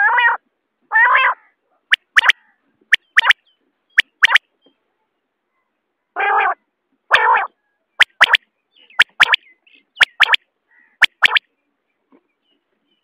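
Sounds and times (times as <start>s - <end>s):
quail harsh rasping notes: 1.9s - 3.4s, 4.0s - 4.4s, 9.0s - 9.4s, 10.0s - 10.4s, 11.0s - 11.4s
quail three-note whistled song: 3.0s - 3.4s.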